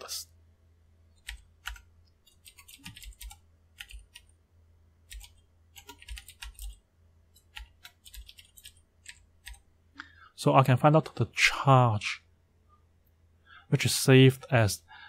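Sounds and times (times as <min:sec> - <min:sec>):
typing on computer keyboard: 0:01.2 - 0:04.3, 0:05.1 - 0:06.8, 0:07.4 - 0:09.6.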